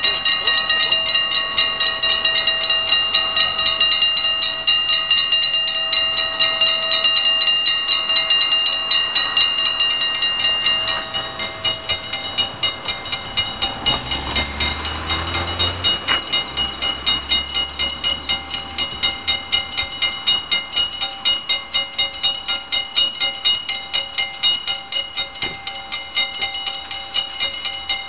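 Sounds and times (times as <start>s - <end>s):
level-crossing warning bells ringing: 0.0s - 28.0s
low rumble of train: 0.0s - 28.0s.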